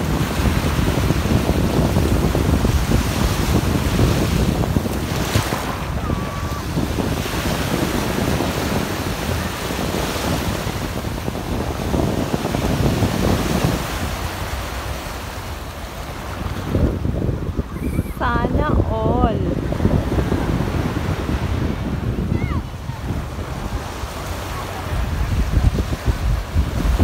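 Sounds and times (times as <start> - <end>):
small waves breaking on shore: 0.0 - 27.0
wind buffeting microphone: 0.0 - 27.0.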